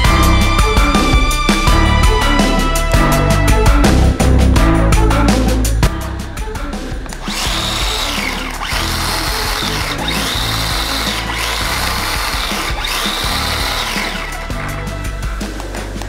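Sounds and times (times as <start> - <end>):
background music: 0.0 - 16.0
electric motor whine: 7.2 - 14.5.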